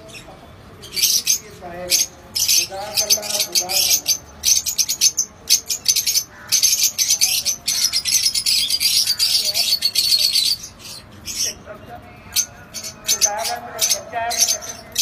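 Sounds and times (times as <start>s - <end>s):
lovebirds chattering and shrieking: 0.0s - 15.0s.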